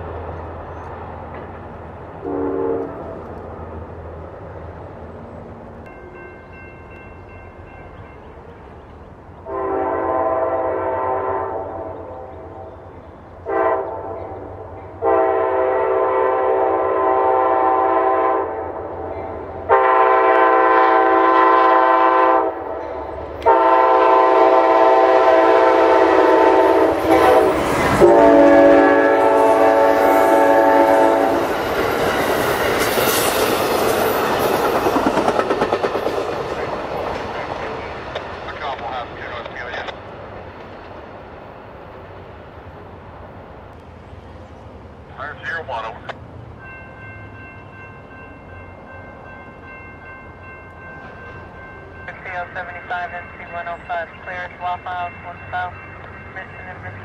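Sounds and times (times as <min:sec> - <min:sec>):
locomotive air horn blasts: 0:02.2 - 0:03.2, 0:09.4 - 0:12.8, 0:13.4 - 0:19.1, 0:19.7 - 0:22.8, 0:23.4 - 0:31.6
train wheels clattering on rails: 0:30.9 - 0:42.6.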